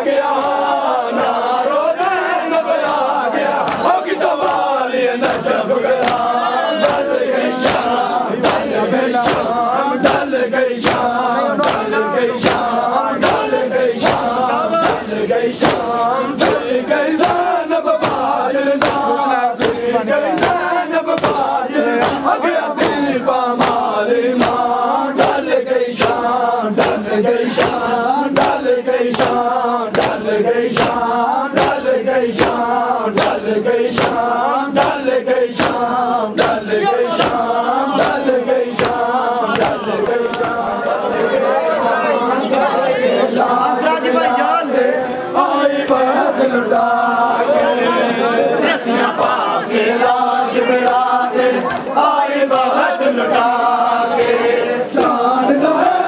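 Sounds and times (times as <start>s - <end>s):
men chanting in unison: 0.0s - 56.0s
hands slapping chests: 2.7s - 41.3s.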